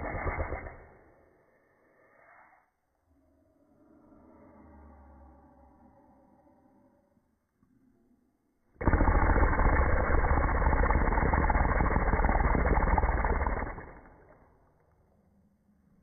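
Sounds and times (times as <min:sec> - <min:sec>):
slowed breath rush on microphone: 0:00.0 - 0:07.2.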